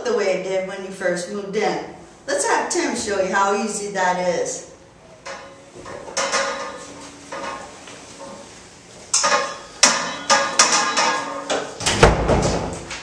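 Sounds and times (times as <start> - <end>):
metal bed frame clanking: 5.2 - 8.5, 9.1 - 12.9.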